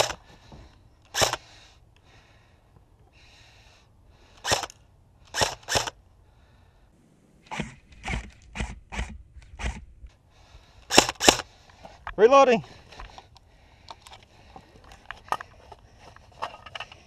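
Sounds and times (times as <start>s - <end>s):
airsoft rifle shots: 1.1s - 1.4s, 7.0s - 9.8s, 10.9s - 11.5s.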